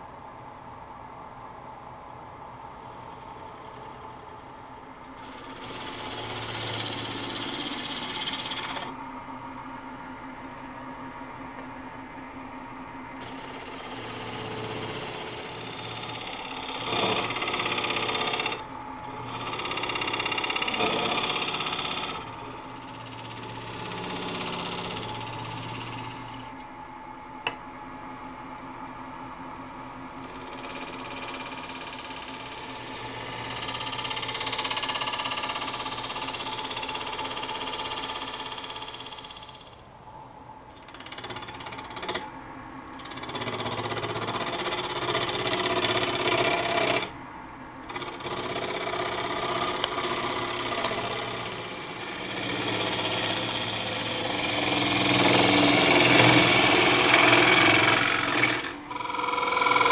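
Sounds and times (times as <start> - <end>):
wood lathe humming: 2.6 - 9.0, 13.2 - 26.6, 30.0 - 39.8, 40.8 - 42.3, 42.9 - 47.2, 47.8 - 59.9
gouge cutting wood: 5.2 - 8.9, 13.2 - 18.6, 19.2 - 26.4, 43.0 - 47.1, 47.9 - 59.9.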